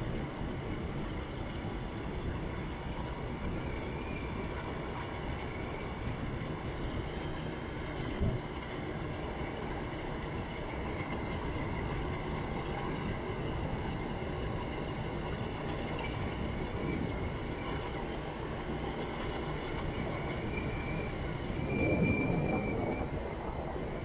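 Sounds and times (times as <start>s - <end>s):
wind and road noise: 0.0s - 24.0s.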